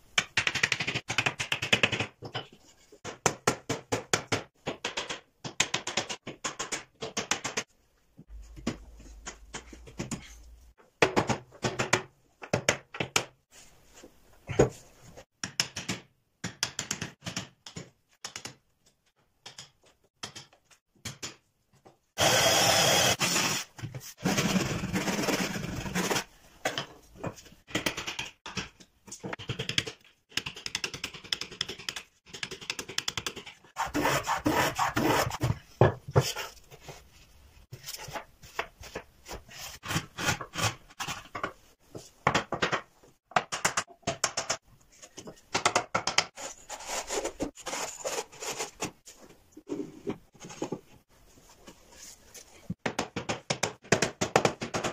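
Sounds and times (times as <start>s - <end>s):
hand plane rasping on wood: 33.8s - 35.4s.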